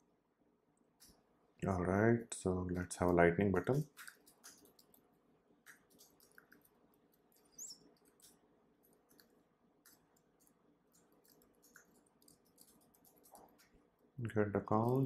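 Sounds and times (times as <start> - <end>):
keyboard typing: 3.8 - 5.0, 5.7 - 13.8.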